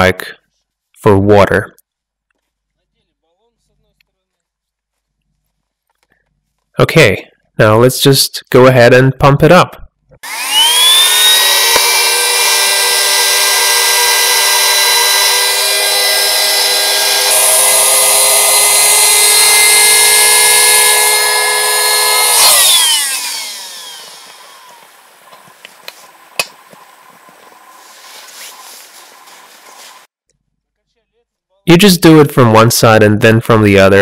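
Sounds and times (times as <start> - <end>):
air compressor motor whining: 10.2 - 30.1.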